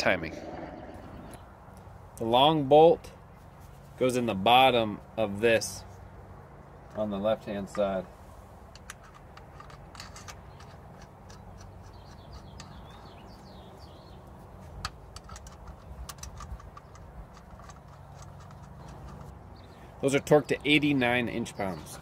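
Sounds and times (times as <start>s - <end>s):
metallic clicks of wrench and bolts: 8.7s - 13.1s, 14.8s - 19.3s.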